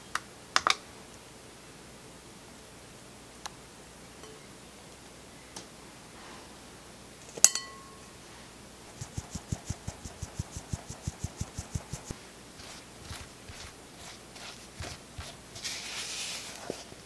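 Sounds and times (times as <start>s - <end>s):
clink on glass bowl: 7.4s - 8.0s
flour sieve tapping: 9.0s - 15.7s.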